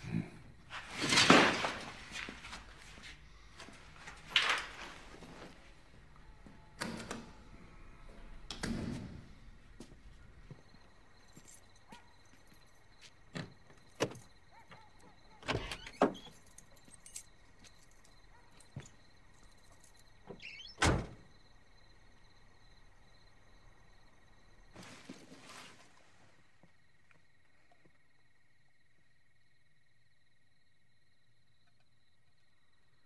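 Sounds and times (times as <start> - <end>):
crickets trilling: 7.4 - 33.0.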